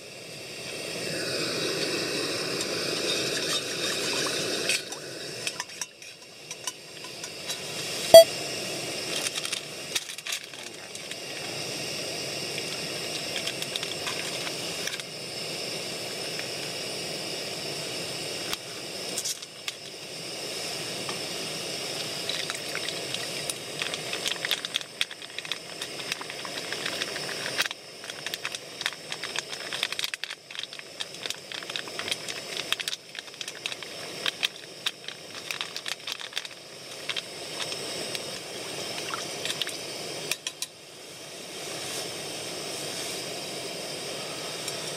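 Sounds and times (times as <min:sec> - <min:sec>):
gas stove hissing: 0:00.0 - 0:44.9
crackles and clicks in broth: 0:04.0 - 0:07.6, 0:12.5 - 0:15.1, 0:22.0 - 0:40.8.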